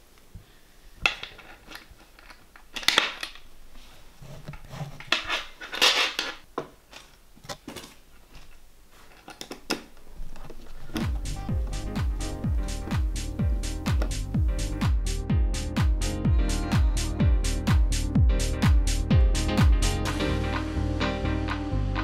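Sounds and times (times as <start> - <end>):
electronic music: 11.0 - 22.0.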